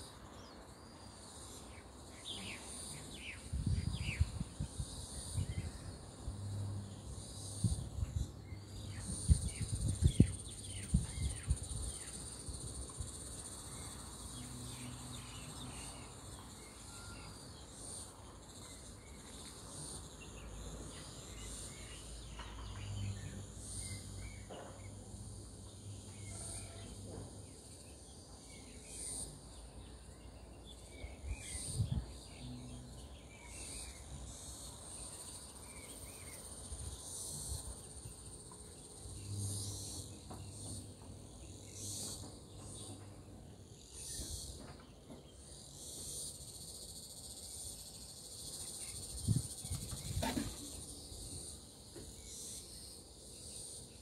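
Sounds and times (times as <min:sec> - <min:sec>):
faint bird chirps: 0:15.4 - 0:17.7
high-pitched insect drone: 0:27.6 - 0:43.0, 0:45.5 - 0:54.0.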